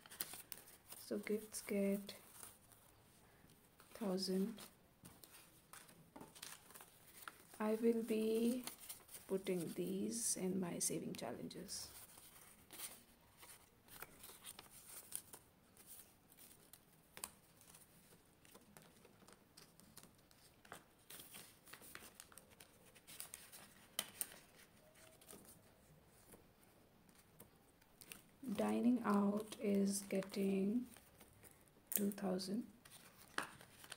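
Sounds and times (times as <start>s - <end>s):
paper banknotes rustling: 0.0s - 2.9s, 3.8s - 9.8s, 11.8s - 26.4s, 32.8s - 33.9s
soft plastic rustling: 0.0s - 10.3s, 10.9s - 33.9s.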